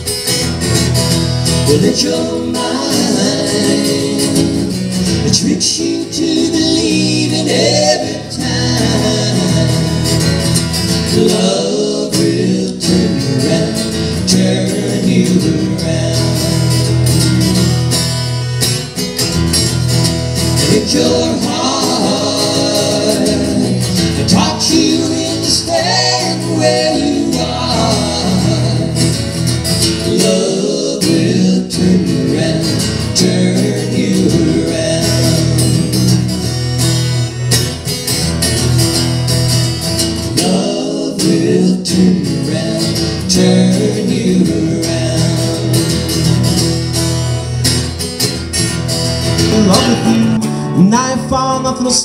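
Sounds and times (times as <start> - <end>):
acoustic guitar strummed and picked: 0.0 - 52.0
man singing: 1.5 - 17.2, 20.6 - 36.4, 40.2 - 46.9, 49.4 - 52.0.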